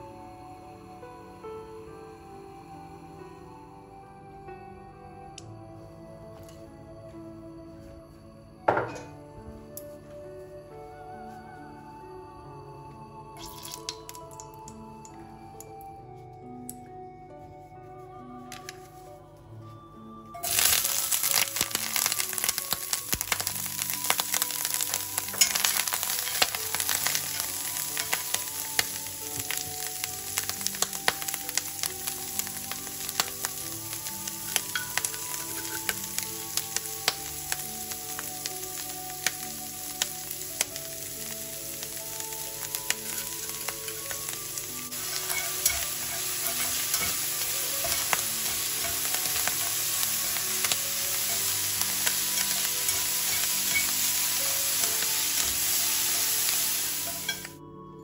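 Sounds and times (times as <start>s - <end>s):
greens sizzling in hot oil: 13.4s - 15.2s, 20.4s - 57.6s.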